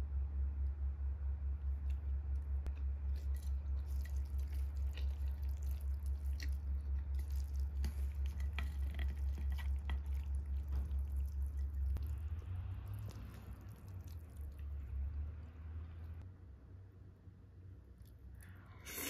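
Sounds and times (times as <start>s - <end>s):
low steady hum: 0.0s - 19.0s
wet squishing of noodles: 1.8s - 16.2s.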